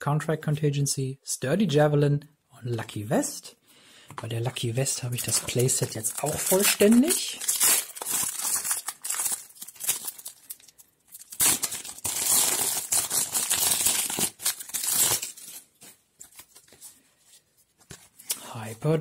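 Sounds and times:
foil wrapper tearing and crinkling: 5.2s - 15.7s
cards being handled: 11.5s - 18.4s.

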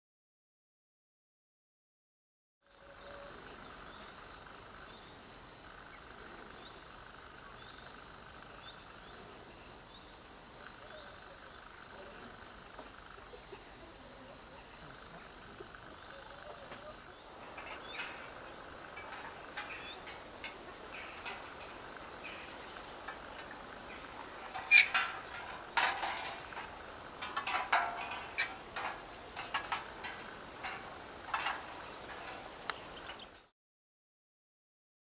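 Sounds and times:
metal mobile clinking: 17.4s - 32.6s.

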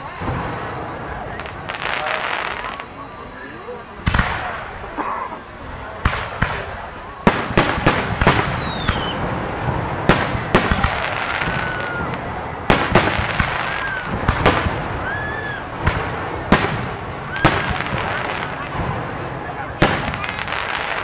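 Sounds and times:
firework shells bursting: 6.0s - 21.0s.

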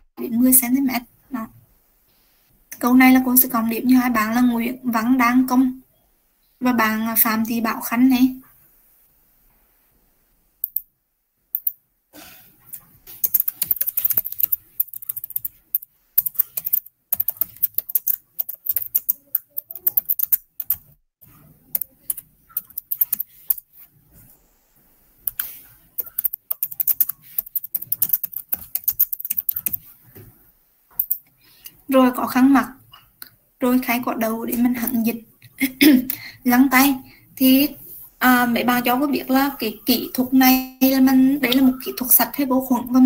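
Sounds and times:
computer keyboard typing: 10.6s - 10.8s, 11.6s - 11.8s, 13.1s - 21.0s, 21.7s - 23.6s, 25.3s - 29.9s.

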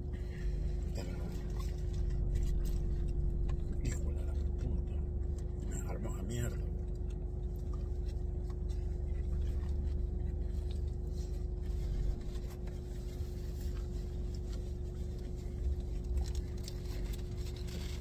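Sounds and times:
car cabin hum: 0.0s - 18.0s
paper wrappers rustling: 8.6s - 18.0s.

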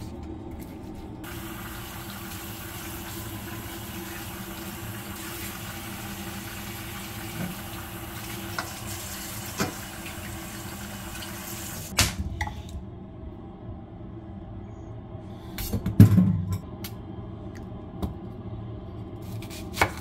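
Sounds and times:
tap water running into colander: 1.2s - 11.9s.

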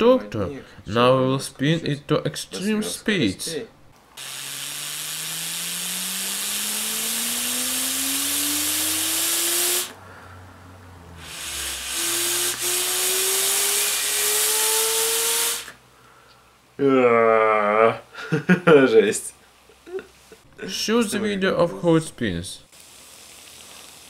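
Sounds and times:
tone rising in pitch: 4.4s - 9.9s
breath blowing hiss: 11.2s - 16.2s.

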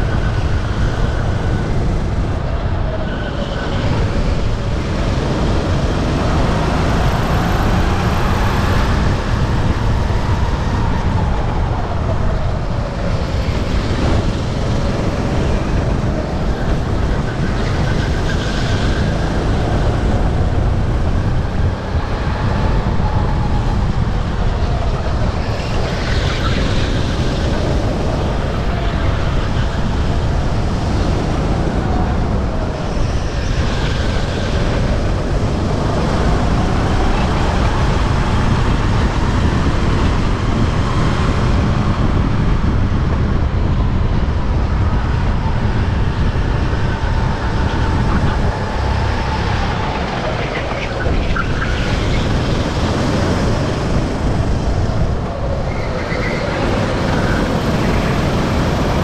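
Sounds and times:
kart engine accelerating: 44.6s - 59.0s.

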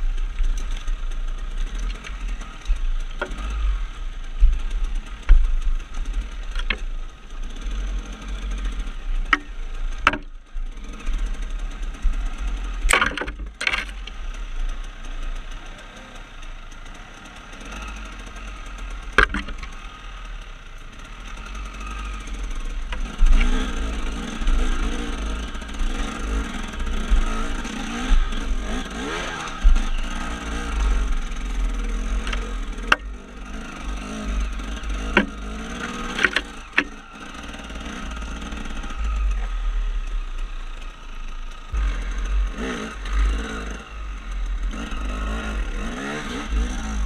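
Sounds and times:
motorcycle engine rumbling: 0.0s - 47.0s
bike knocking on rocks: 9.3s - 10.4s, 19.2s - 19.7s.

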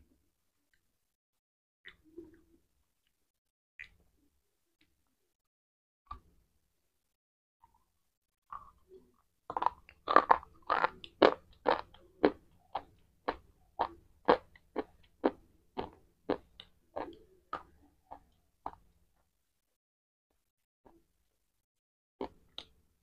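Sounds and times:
crisp chewing crunches: 9.5s - 17.1s.

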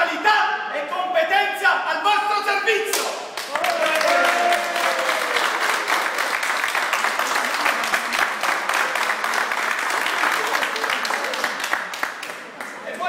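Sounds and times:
people clapping: 2.9s - 13.0s.

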